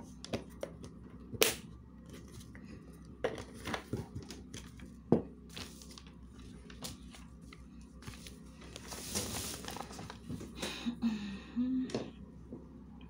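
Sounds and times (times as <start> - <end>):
paper rustling: 5.5 - 10.5.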